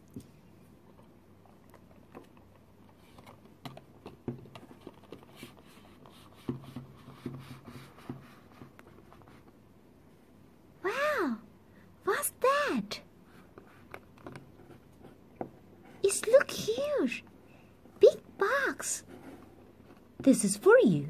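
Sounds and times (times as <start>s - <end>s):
hands handling plastic toys: 13.4s - 17.0s.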